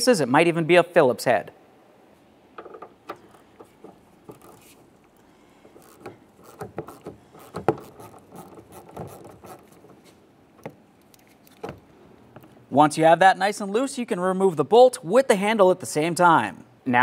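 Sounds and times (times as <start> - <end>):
tool scraping on plastic: 5.6 - 10.2
ratchet clicks: 5.7 - 9.8.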